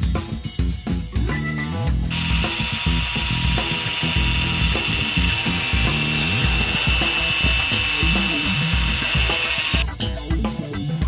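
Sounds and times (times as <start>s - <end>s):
background music with beat: 0.0s - 11.0s
power tool whining: 2.1s - 9.8s.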